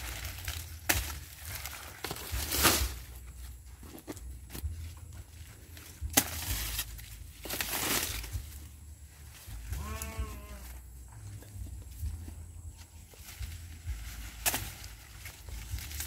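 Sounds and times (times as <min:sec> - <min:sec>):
corn leaves and brush rustling: 0:00.0 - 0:16.0
goat bleating: 0:09.8 - 0:10.8.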